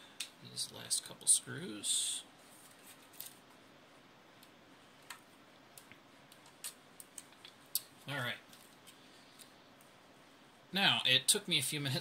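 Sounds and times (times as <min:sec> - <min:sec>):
small clicks and handling noises: 0:04.4 - 0:09.9.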